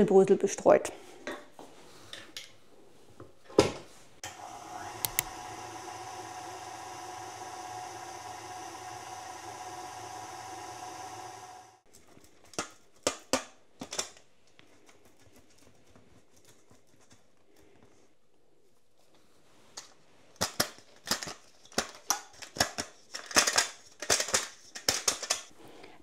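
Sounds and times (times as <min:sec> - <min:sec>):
stand mixer kneading dough: 0:04.2 - 0:11.8.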